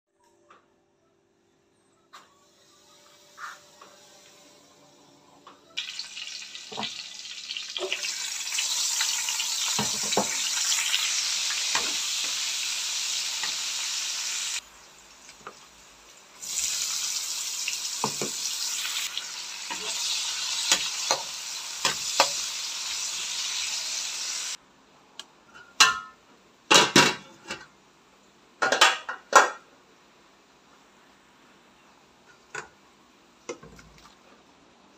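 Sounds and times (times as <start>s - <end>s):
food sizzling in hot oil: 5.8s - 24.6s.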